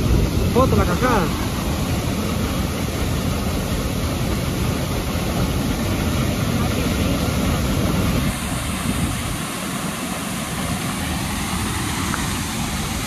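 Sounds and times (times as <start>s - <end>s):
waterfall roar: 0.0s - 13.0s.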